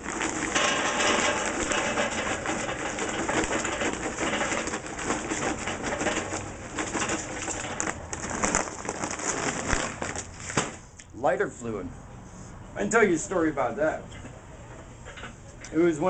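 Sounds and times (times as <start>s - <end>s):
charcoal pouring into metal grill: 0.0s - 10.9s.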